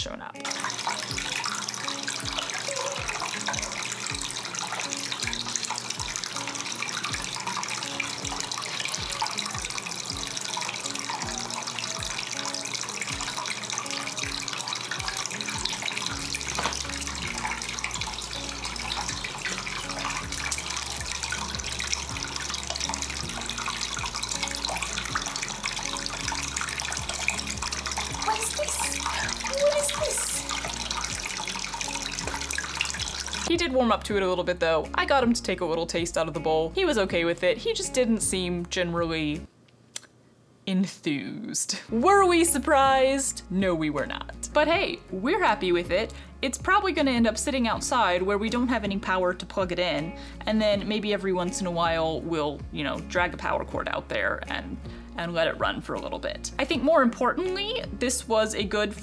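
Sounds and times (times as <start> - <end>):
water trickling in fountain: 0.4 - 38.5, 43.8 - 59.0
background music with beat: 5.2 - 6.5, 7.1 - 33.4.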